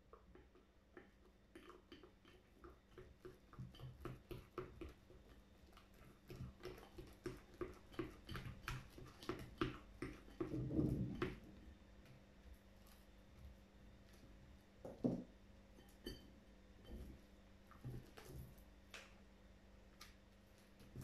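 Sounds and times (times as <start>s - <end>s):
fork stirring sticky slime: 0.0s - 11.7s, 15.7s - 18.8s.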